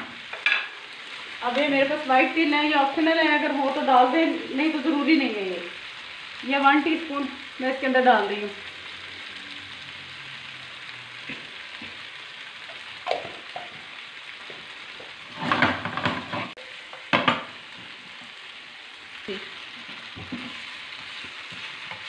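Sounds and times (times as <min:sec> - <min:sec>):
chicken sizzling in hot oil: 0:00.0 - 0:22.0
wooden spatula scraping: 0:15.1 - 0:16.6
food clattering in shaken pan: 0:15.4 - 0:17.5.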